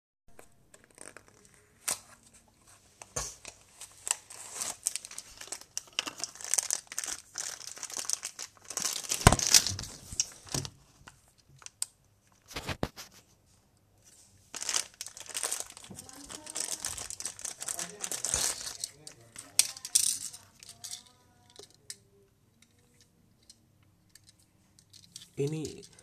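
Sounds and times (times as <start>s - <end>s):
packaging crinkling and tearing: 0.3s - 2.1s, 3.3s - 13.1s, 14.5s - 21.0s.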